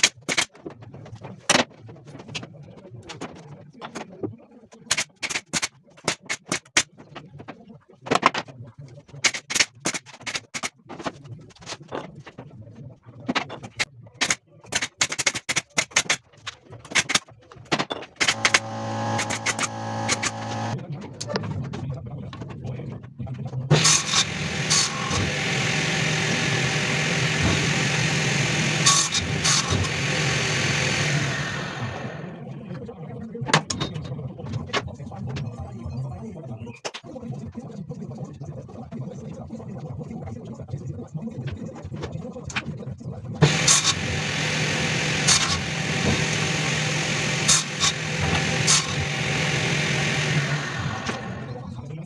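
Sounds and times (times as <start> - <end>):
electric motor humming: 18.2 - 20.8, 23.7 - 32.4, 43.4 - 51.6
saw cutting wood: 18.2 - 20.8, 23.7 - 32.4, 43.4 - 51.6
table saw running: 18.2 - 20.8, 23.7 - 32.4, 43.4 - 51.6.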